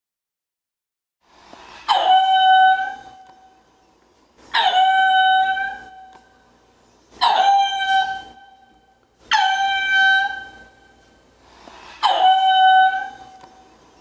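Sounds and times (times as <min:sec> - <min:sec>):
lemur crying: 0:01.7 - 0:03.6, 0:04.5 - 0:06.4, 0:07.2 - 0:11.0, 0:11.8 - 0:13.7.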